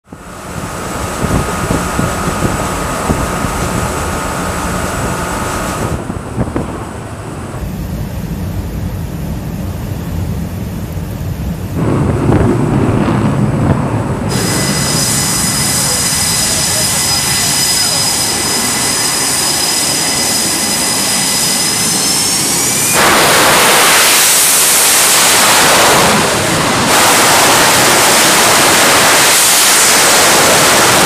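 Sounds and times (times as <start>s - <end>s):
engine and wind rumble: 0.0s - 31.0s
jet engines whining: 0.1s - 31.0s.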